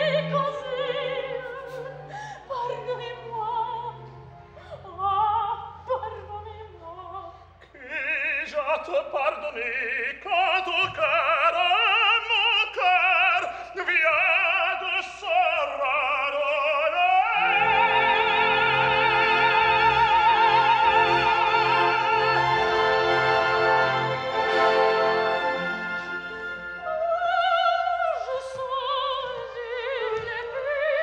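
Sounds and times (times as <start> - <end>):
orchestra playing: 0.0 - 6.2, 17.4 - 31.0
opera duet singing: 0.0 - 31.0.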